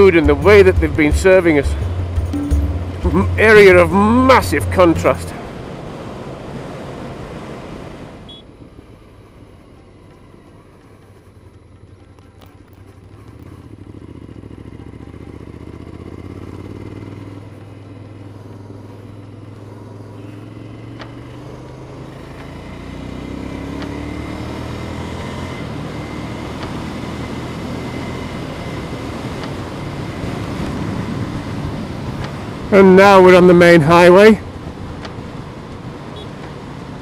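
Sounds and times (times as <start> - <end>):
motorcycle engine running: 0.0 - 5.8, 8.3 - 32.9
light ticks: 20.9 - 22.6.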